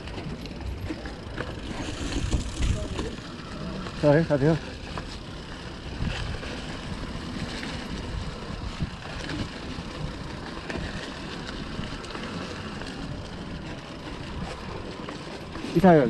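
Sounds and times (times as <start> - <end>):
bike rattles and clicks: 0.0 - 16.0
bike tyres crunching over dirt: 0.0 - 16.0
wind rumble on microphone: 1.6 - 4.0, 5.7 - 15.0.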